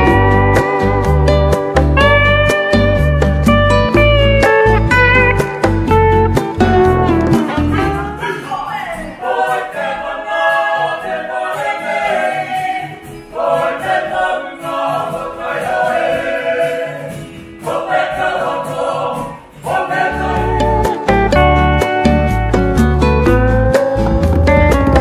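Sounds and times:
music with deep steady beat: 0.0s - 8.1s, 21.1s - 25.0s
guitar accompaniment: 0.0s - 8.4s, 11.6s - 25.0s
group singing in harmony: 7.5s - 21.6s.

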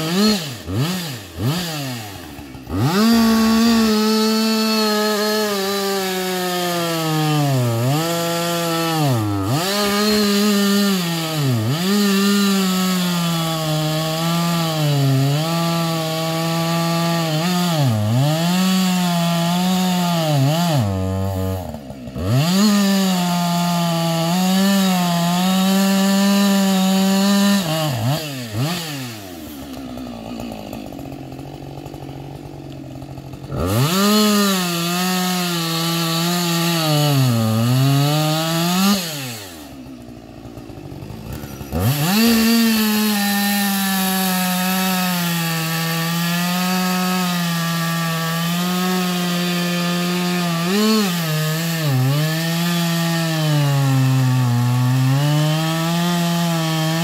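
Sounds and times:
chainsaw cutting wood: 0.0s - 57.0s
chainsaw idling: 0.0s - 57.0s.

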